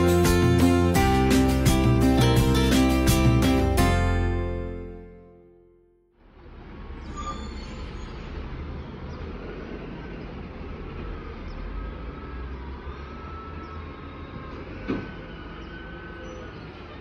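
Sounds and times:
garbage truck diesel engine: 0:00.0 - 0:05.2.

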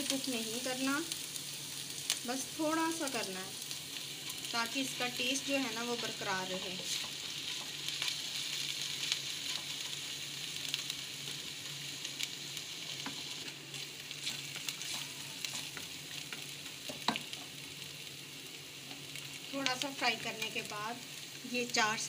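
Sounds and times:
food sizzling in oil: 0:00.0 - 0:22.0
spatula scraping a pan: 0:13.0 - 0:17.2.

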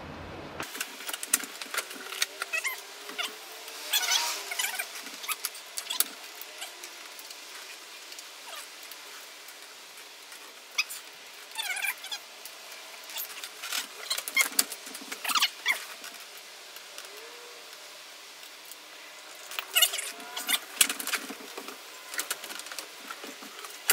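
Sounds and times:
plastic rubbing squeaks: 0:01.2 - 0:06.9, 0:13.1 - 0:16.0, 0:19.6 - 0:23.9.

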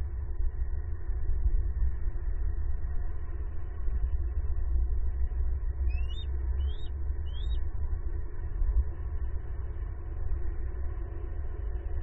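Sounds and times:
low outdoor rumble: 0:00.0 - 0:12.0
bird chirping: 0:05.9 - 0:07.6.

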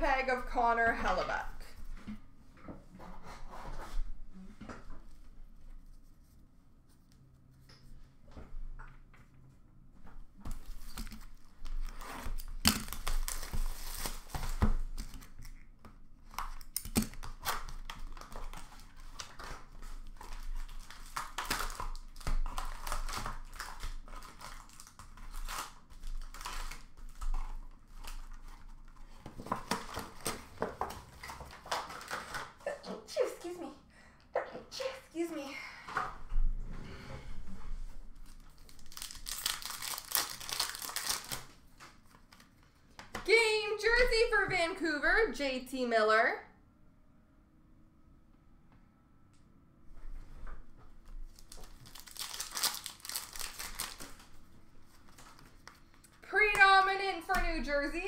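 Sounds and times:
packaging tearing and crinkling: 0:10.6 - 0:32.6, 0:38.2 - 0:42.6, 0:51.3 - 0:54.4.

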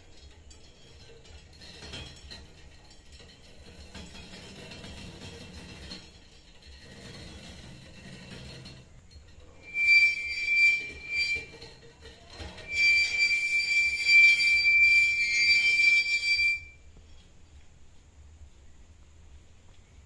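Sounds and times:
high-pitched metallic squeal: 0:06.7 - 0:16.8.

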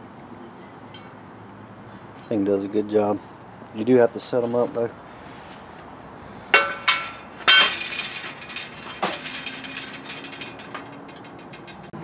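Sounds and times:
steel plate clanking on table: 0:06.5 - 0:12.0.

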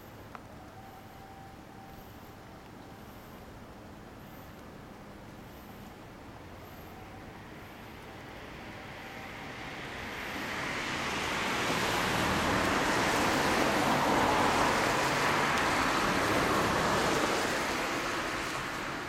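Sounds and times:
vehicle passing: 0:08.2 - 0:19.0.

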